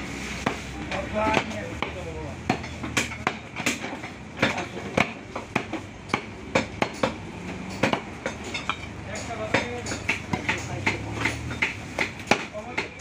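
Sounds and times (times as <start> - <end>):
knife chopping on wooden block: 1.3 - 7.2, 9.5 - 13.0.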